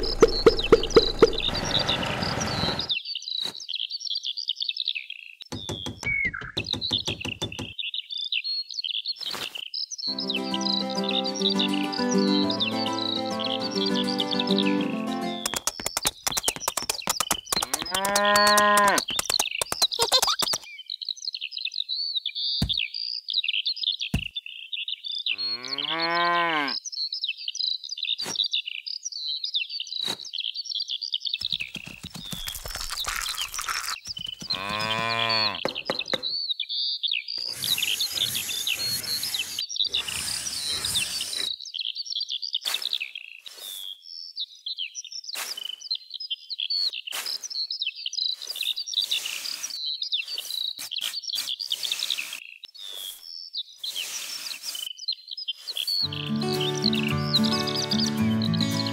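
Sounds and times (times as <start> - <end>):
birds chirping: 0.0 - 9.2, 9.8 - 21.1, 22.2 - 26.8, 33.9 - 43.4, 55.8 - 58.9
cow mooing: 17.8 - 19.0, 25.3 - 26.8, 34.5 - 35.6.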